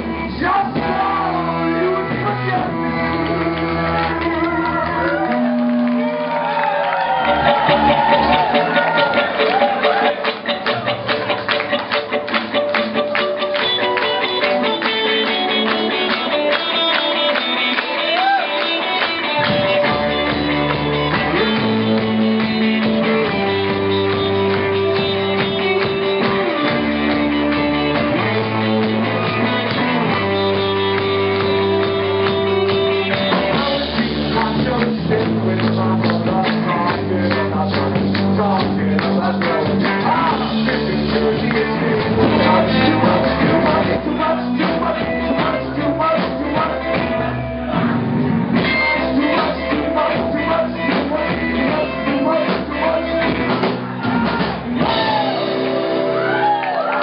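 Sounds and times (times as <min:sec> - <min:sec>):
low bass line: 0:00.0 - 0:06.4, 0:07.1 - 0:16.3, 0:19.4 - 0:56.6
live rock band playing: 0:00.0 - 0:57.0
voices singing: 0:32.8 - 0:48.0.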